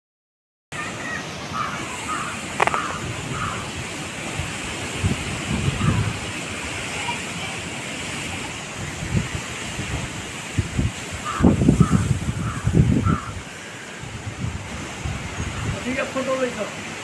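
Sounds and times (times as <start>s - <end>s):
wind rushing through trees: 0.7s - 17.0s
bird calling: 0.8s - 4.0s, 5.7s - 6.2s, 11.2s - 14.0s
wind buffeting microphone: 1.0s - 16.1s.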